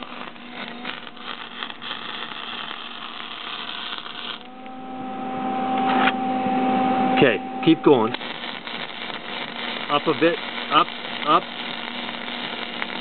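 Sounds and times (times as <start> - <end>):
welding arc crackling: 0.0 - 4.6, 7.6 - 13.0
steady low hum: 0.0 - 13.0.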